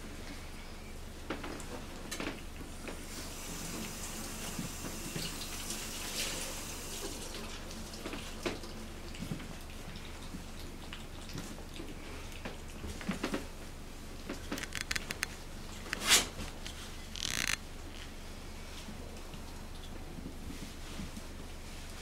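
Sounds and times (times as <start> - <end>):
puppy lapping: 9.1 - 13.4
puppy claws clicking on tiles: 14.5 - 17.6.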